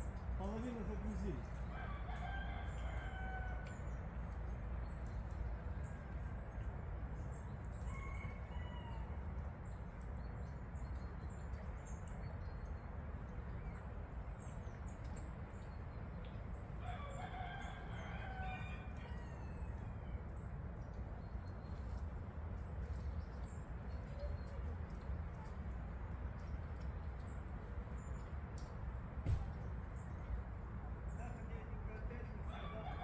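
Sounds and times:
bird crowing call: 0:01.6 - 0:03.8.

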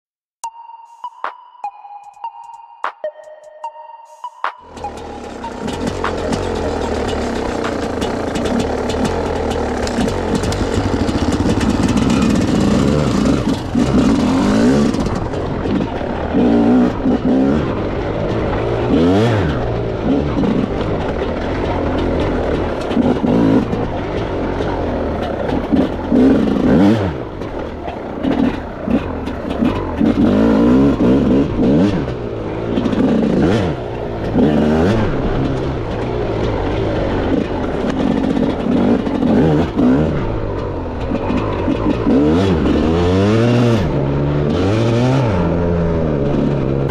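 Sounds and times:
dirt bike engine revving: 0:04.6 - 0:46.9.

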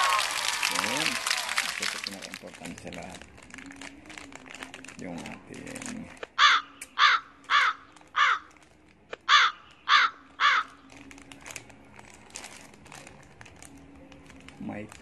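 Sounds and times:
crow cawing: 0:06.4 - 0:08.5, 0:09.3 - 0:10.8.

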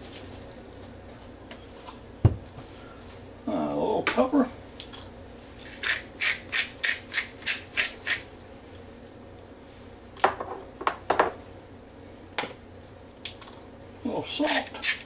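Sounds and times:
pepper grinder rasping: 0:05.6 - 0:08.3, 0:14.4 - 0:15.0.

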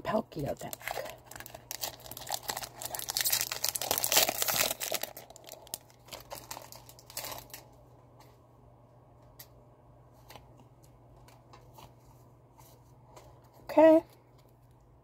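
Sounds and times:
foil wrapper crinkling and tearing: 0:00.6 - 0:07.8.

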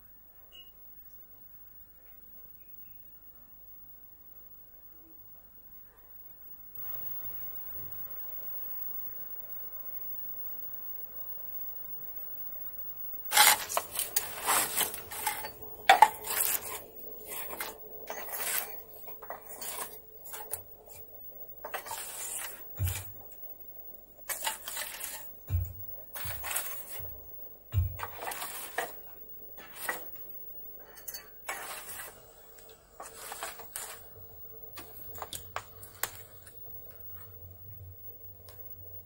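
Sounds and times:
objects scraping and clattering: 0:13.3 - 0:23.5, 0:24.2 - 0:37.4.

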